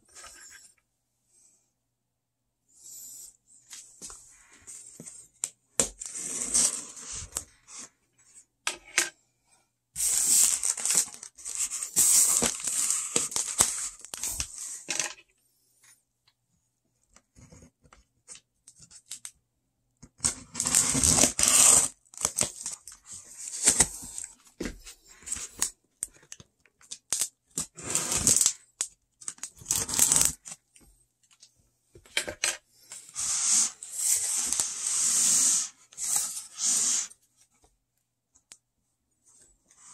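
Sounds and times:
cardboard scraping and rubbing: 33.1s - 37.2s.

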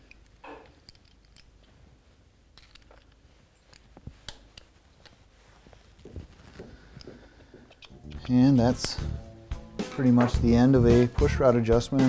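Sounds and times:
screwdriver clicking and scraping metal: 0.0s - 1.5s, 2.6s - 5.2s.

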